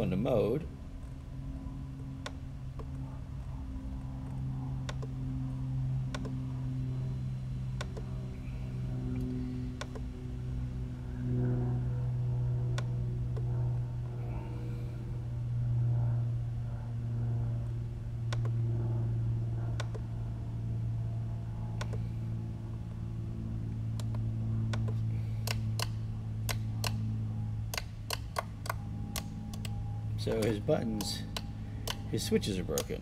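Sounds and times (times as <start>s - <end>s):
steady low hum: 0.0s - 33.0s
toggle switches clicking: 19.8s - 20.0s, 27.7s - 32.1s, 32.7s - 33.0s.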